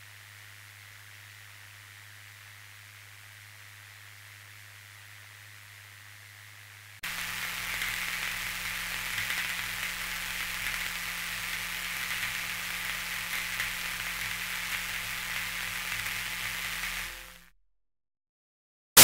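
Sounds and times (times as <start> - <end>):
static-like hiss: 0.0 - 17.5
faint crackle: 7.0 - 17.5.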